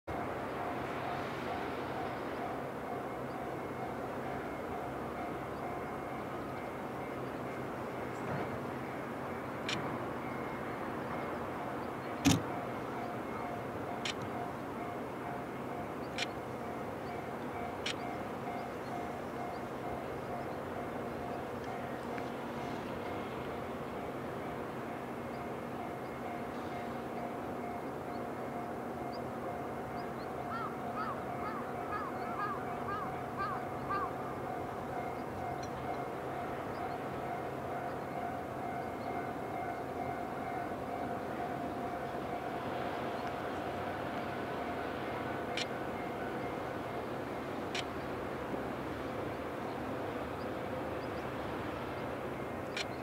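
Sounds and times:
faint beeping tone: 0:00.1 - 0:30.3
distant diesel locomotive: 0:00.1 - 0:53.0
industrial area background noise: 0:00.1 - 0:53.0.

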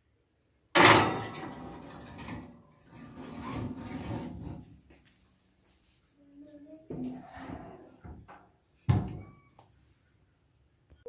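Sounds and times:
glass scraping on metal rack: 0:01.0 - 0:04.7.

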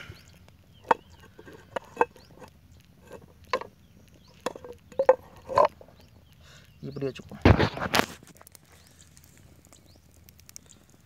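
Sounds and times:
sharp clicks and knocks: 0:00.3 - 0:06.4.

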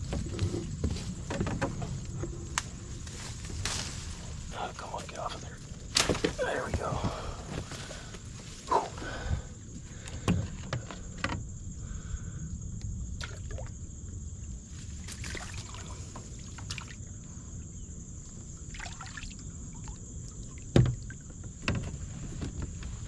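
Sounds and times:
rustling of brush: 0:00.0 - 0:06.8
branches clicking: 0:02.5 - 0:04.5, 0:05.9 - 0:06.6.

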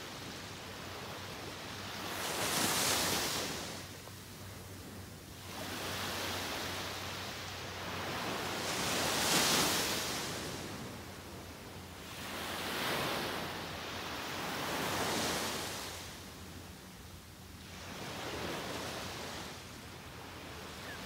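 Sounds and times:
waves washing on sand: 0:00.0 - 0:16.6.

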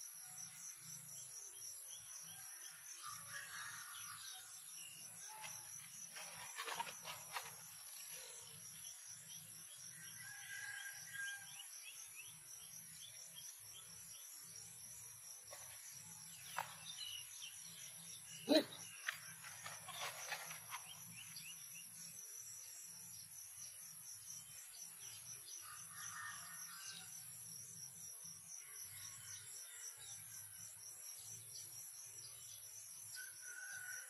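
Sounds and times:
insects trilling: 0:00.0 - 0:34.0
rustling on plastic mat: 0:06.1 - 0:08.0.

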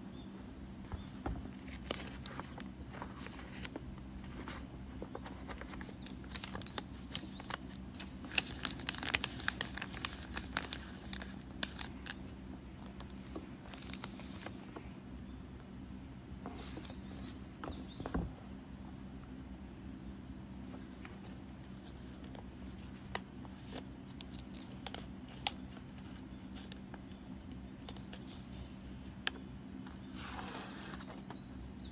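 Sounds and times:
low steady hum: 0:00.0 - 0:31.9
plastic sleeves crinkling: 0:01.6 - 0:14.6.

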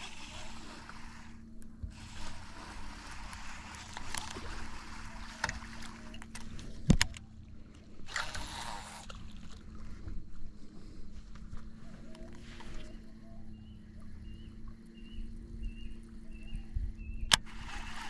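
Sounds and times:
reel click: 0:00.0 - 0:07.3, 0:08.0 - 0:09.2, 0:17.2 - 0:18.0
low hum and hiss: 0:00.0 - 0:18.0
spool whirring: 0:00.0 - 0:18.0.

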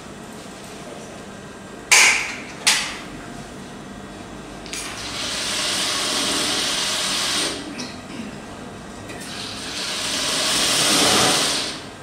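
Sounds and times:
sewing machine whirring: 0:05.0 - 0:07.6, 0:09.2 - 0:11.8.

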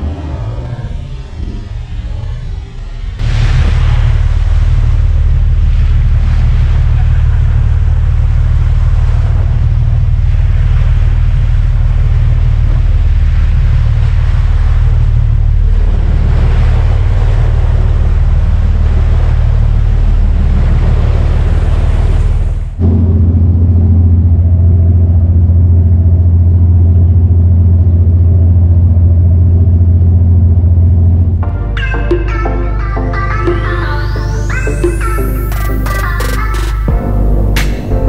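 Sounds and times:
steady low rumble: 0:00.0 - 0:38.0
waves splashing against boat hull: 0:03.2 - 0:24.8.

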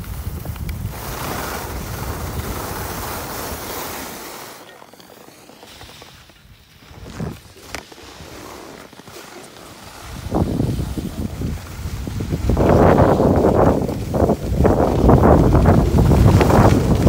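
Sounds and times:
wind buffeting microphone: 0:00.0 - 0:03.7, 0:10.0 - 0:17.0
skis scraping over snow: 0:00.0 - 0:17.0.

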